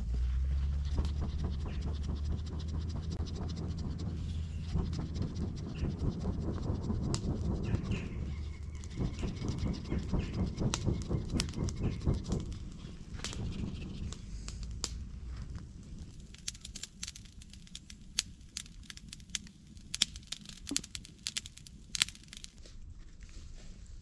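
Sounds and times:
low rumble: 0.0 - 24.0
sharp crackles and snaps: 5.7 - 23.3.

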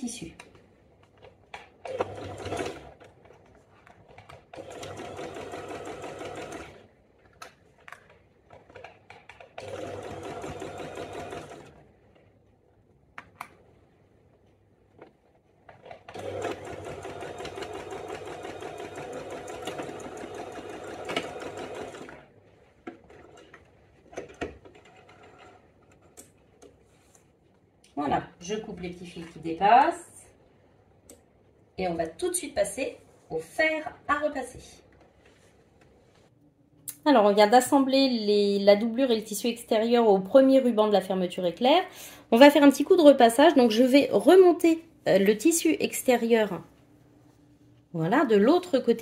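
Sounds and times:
electric sewing machine stitching: 1.8 - 3.0, 4.5 - 6.9, 9.6 - 11.8, 16.1 - 22.3.

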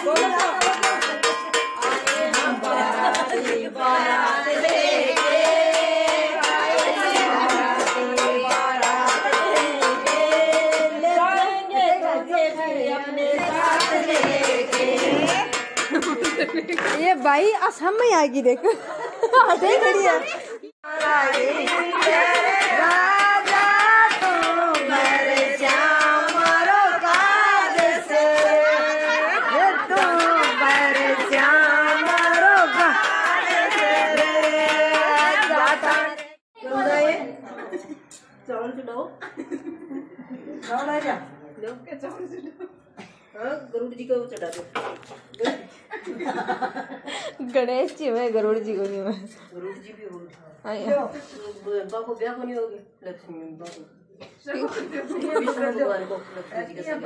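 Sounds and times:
beat struck on metal plate: 0.0 - 2.8
hand clapping: 0.0 - 3.6, 20.9 - 28.6, 29.8 - 36.4
women singing folk song: 1.8 - 16.2, 20.8 - 37.2.

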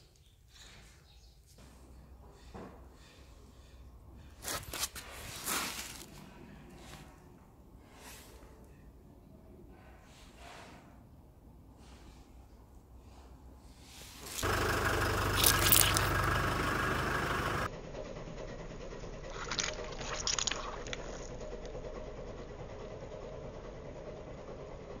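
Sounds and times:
car engine running: 14.2 - 25.0.

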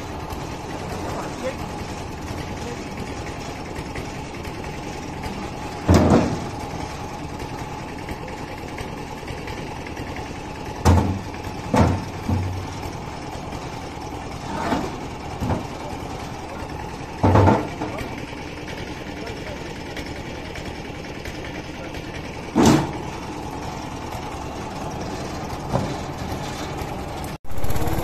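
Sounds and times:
engine idling: 0.0 - 28.0
stones thudding onto metal bed: 5.8 - 6.6, 10.8 - 12.7.

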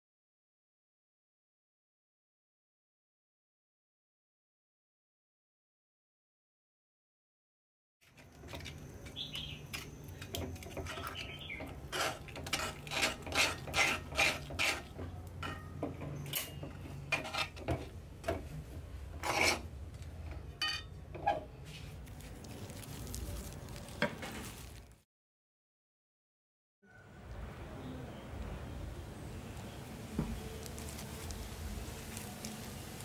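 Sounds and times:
spoon scraping dough in metal bowl: 8.1 - 18.0, 19.1 - 19.7
spoon clinking on bowl: 20.6 - 20.9.

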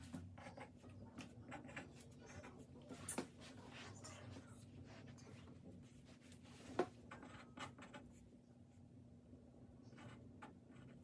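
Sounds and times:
pen scratching on paper: 0.0 - 2.7, 5.8 - 8.2, 9.9 - 11.0.

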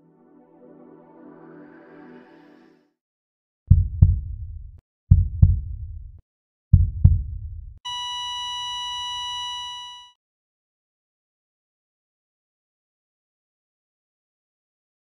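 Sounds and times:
heartbeat double thumps: 3.7 - 7.8
steady high electronic beep: 7.9 - 10.1.

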